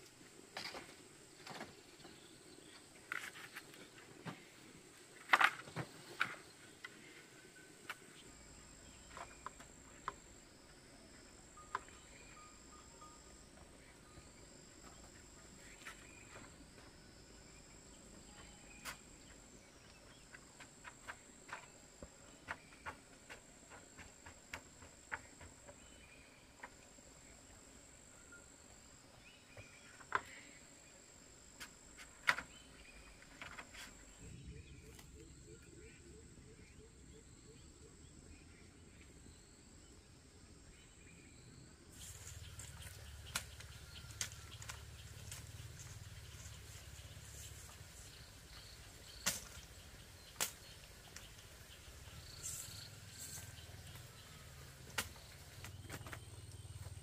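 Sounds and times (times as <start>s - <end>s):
high insect trill: 7.5s - 20.0s, 41.4s - 57.0s.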